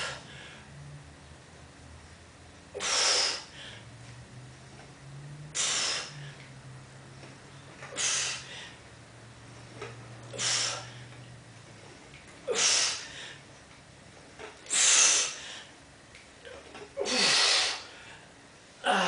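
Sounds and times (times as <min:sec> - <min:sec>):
man breathing hard: 0:00.0 - 0:00.8, 0:02.7 - 0:04.0, 0:05.5 - 0:06.5, 0:07.9 - 0:08.9, 0:10.3 - 0:11.2, 0:12.4 - 0:13.5, 0:14.7 - 0:15.8, 0:17.0 - 0:19.0.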